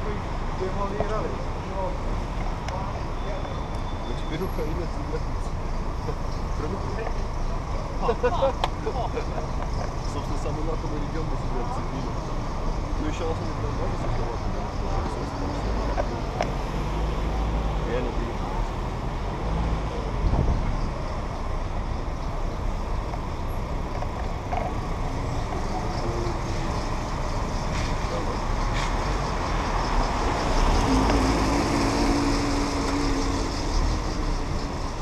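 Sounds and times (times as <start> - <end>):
car engine and tyre noise: 0.0 - 35.0
wind rumble on microphone: 20.1 - 21.0.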